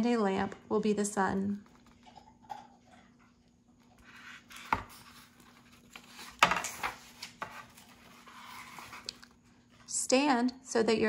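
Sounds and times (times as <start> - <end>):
paper rustling: 4.0 - 9.9.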